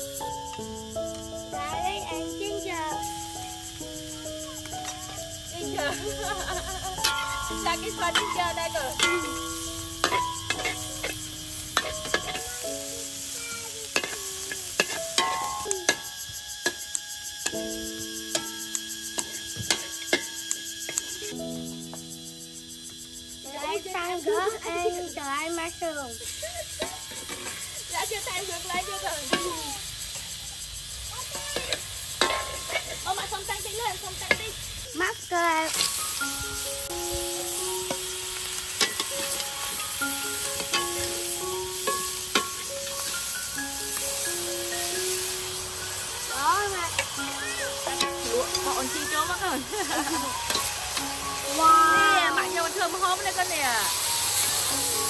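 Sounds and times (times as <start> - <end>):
oil sizzling in a wok: 0.0 - 55.0
metal ladle scraping a wok: 9.0 - 12.5, 13.9 - 16.0, 26.8 - 27.8, 31.6 - 33.1, 38.7 - 41.1, 49.7 - 51.5.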